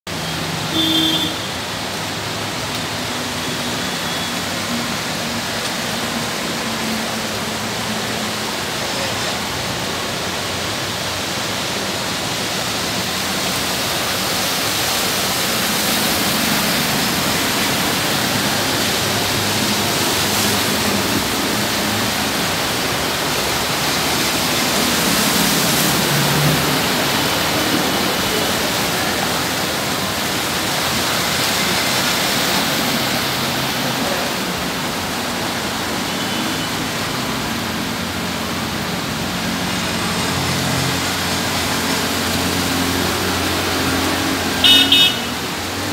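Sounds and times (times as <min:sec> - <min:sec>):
rushing water on flooded street: 0:00.0 - 0:45.9
vehicles splashing through water: 0:00.1 - 0:45.9
brief tone: 0:03.4 - 0:04.4.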